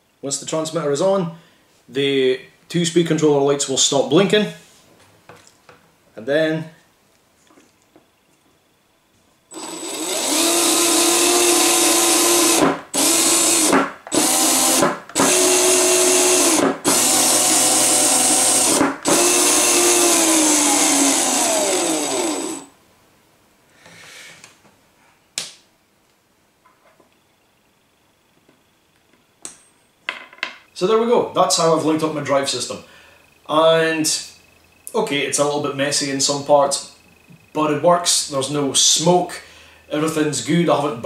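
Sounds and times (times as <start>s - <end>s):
motor and gear whine: 9.5s - 22.7s.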